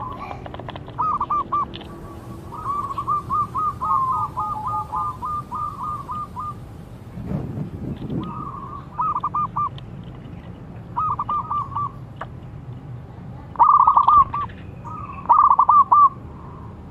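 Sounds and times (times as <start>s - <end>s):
dove cooing: 0.0s - 6.6s, 8.2s - 9.8s, 10.9s - 12.0s, 13.5s - 16.2s
low rumble: 0.0s - 13.5s.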